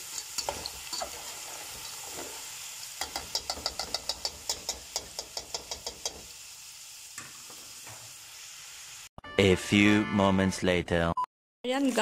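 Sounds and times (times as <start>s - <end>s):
fries sizzling in oil: 0.0s - 9.1s, 11.7s - 12.0s
metal spatula clicking against pot: 3.0s - 6.2s.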